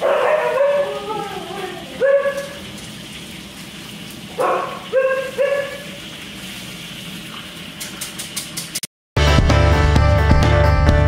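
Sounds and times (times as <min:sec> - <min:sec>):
husky yelping: 0:00.0 - 0:02.6, 0:04.4 - 0:06.0.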